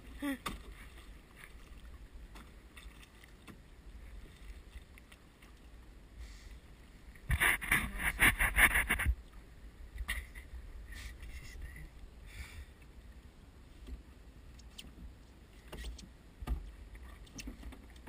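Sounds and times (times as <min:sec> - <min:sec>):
water and oar sounds: 0:00.0 - 0:18.0.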